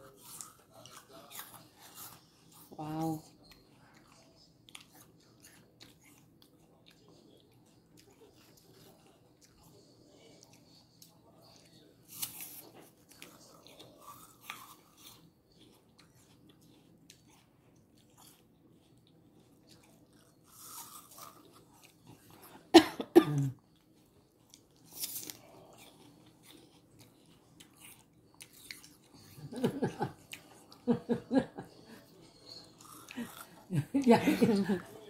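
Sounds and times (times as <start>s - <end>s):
child crunching apple: 11.4s - 22.6s, 24.4s - 29.5s, 32.6s - 33.7s
child coughing: 22.7s - 23.6s.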